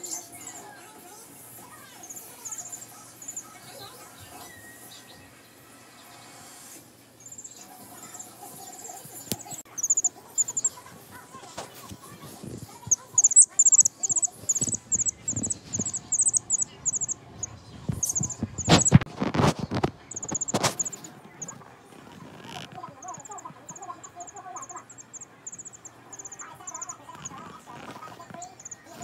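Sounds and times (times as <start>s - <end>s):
chick peeping: 7.4s - 10.8s, 12.9s - 21.6s, 22.8s - 29.0s
fluff brushing microphone: 9.4s - 17.2s, 17.8s - 24.9s, 26.6s - 29.0s.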